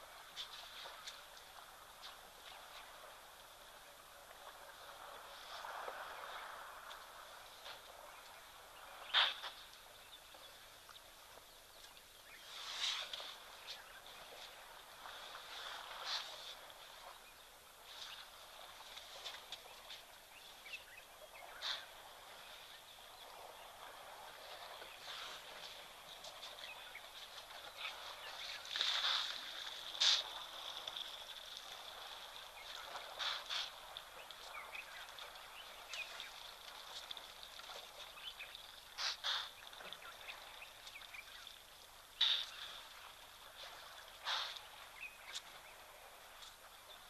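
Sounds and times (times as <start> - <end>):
birds calling sharply: 9.0 - 9.7, 20.8 - 22.0, 38.2 - 40.4, 42.2 - 42.8.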